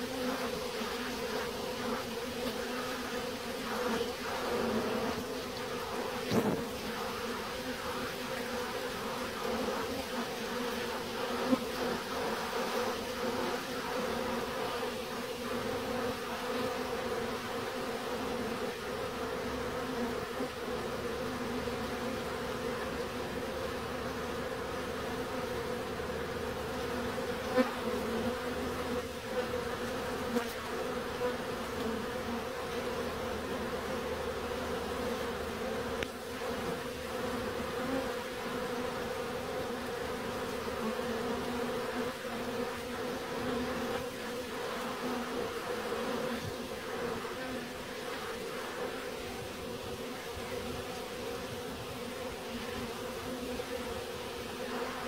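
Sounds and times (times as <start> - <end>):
bees buzzing: 0.0 - 55.0.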